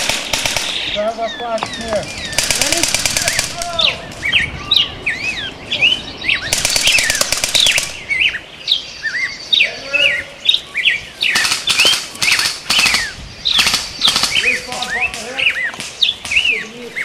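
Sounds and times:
airsoft rifles firing bursts: 0.0s - 0.9s, 2.3s - 3.6s, 6.5s - 8.0s, 11.3s - 16.4s
birds chirping: 0.0s - 17.0s.

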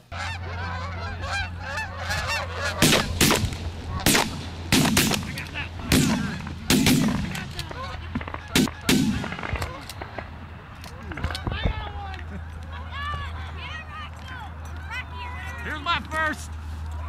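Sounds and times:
geese honking: 0.0s - 9.8s
shotgun shots: 2.8s - 7.6s, 8.2s - 10.3s.

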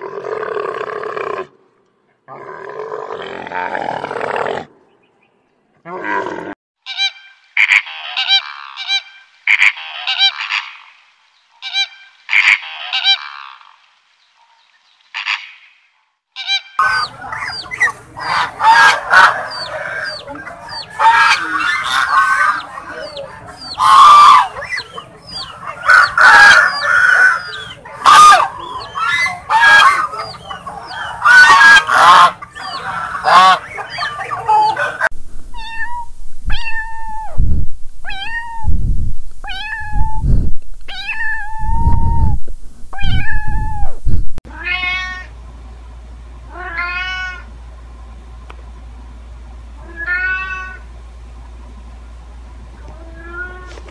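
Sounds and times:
drawn-out goose calls: 6.9s - 10.9s, 11.6s - 13.7s, 16.4s - 35.1s
geese honking: 6.9s - 10.9s, 16.4s - 35.1s
kitten meowing: 35.5s - 37.4s, 38.1s - 38.8s, 39.4s - 40.3s, 40.9s - 42.2s.

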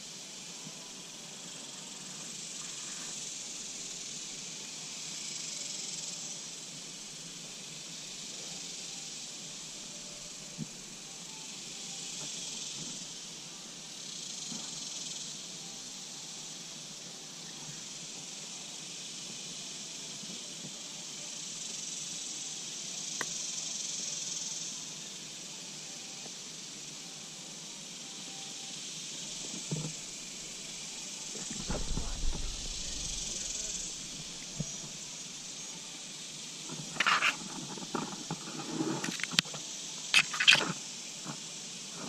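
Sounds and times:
insects buzzing: 0.0s - 42.0s
sharp click: 40.1s - 40.8s.

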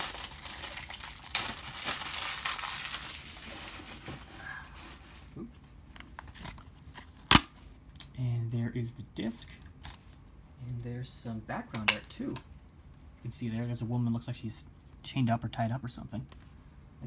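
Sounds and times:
shrink wrap crinkling and tearing: 0.0s - 4.6s.

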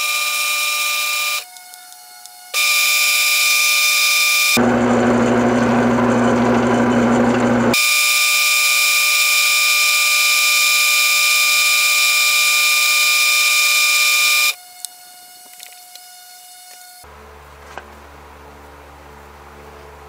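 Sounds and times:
lathe high-pitched whine: 2.6s - 14.6s.

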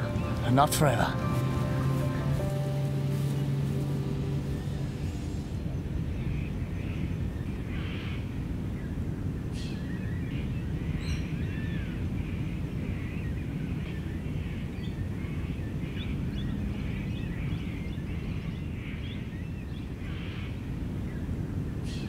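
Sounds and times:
held music chord: 0.0s - 6.4s
low rumble: 0.0s - 7.7s
birds calling: 0.0s - 22.0s.

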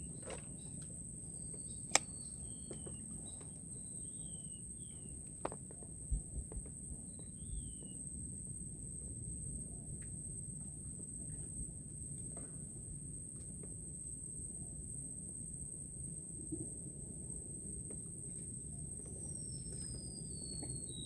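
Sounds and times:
sharp click: 1.9s - 2.2s
falling whistled bird calls: 19.3s - 21.0s.

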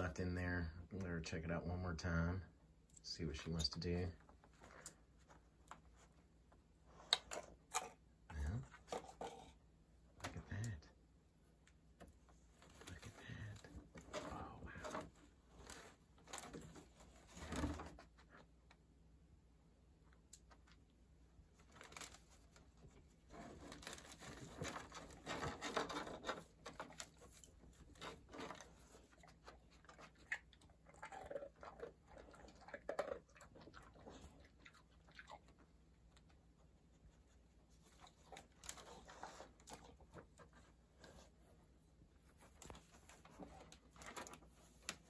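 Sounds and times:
dog rummaging through paper: 23.3s - 30.1s, 42.2s - 45.0s.

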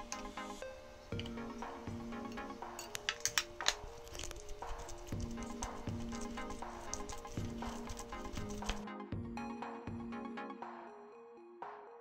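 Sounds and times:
background music held notes: 0.0s - 12.0s.

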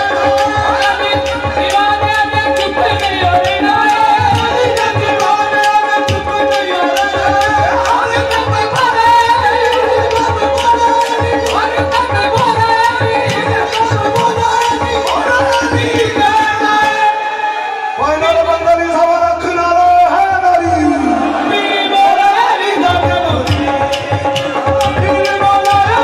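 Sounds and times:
hand-clapping: 0.0s - 15.8s
tabla drumming: 0.0s - 17.4s, 18.0s - 26.0s
harmonium drone: 0.0s - 20.0s
men singing devotional song: 0.0s - 26.0s.

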